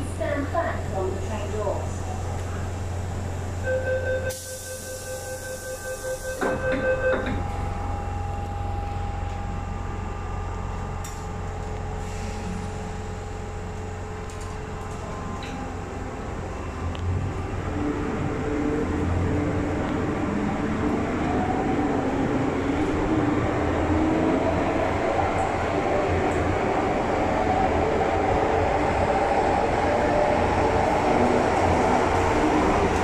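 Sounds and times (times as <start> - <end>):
train door warning beeps: 3.6 - 7.7
train doors closing thump: 6.3 - 7.6.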